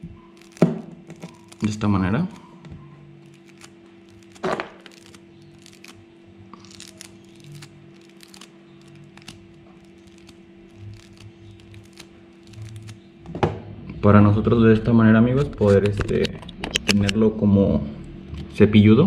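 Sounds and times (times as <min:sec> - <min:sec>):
steady low hum: 0:00.0 - 0:19.0
wire strands clicking and rustling: 0:03.2 - 0:13.0.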